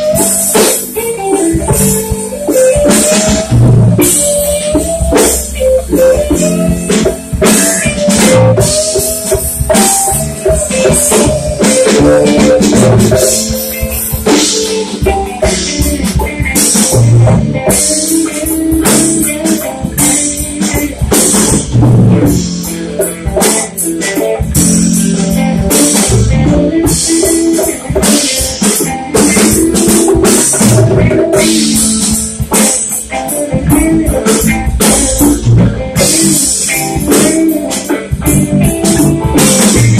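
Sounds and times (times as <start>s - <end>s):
bass guitar: 0.0s - 39.9s
drum kit: 0.0s - 39.9s
electric lead guitar: 0.0s - 39.9s.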